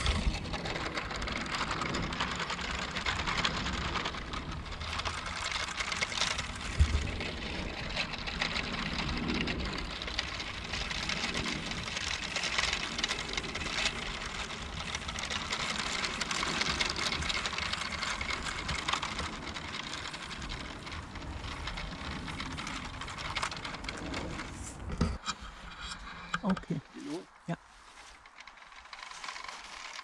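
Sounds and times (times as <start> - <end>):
small electric motor whirring: 0.0 - 24.8, 27.9 - 30.0
wind rumbling on microphone: 0.0 - 27.0.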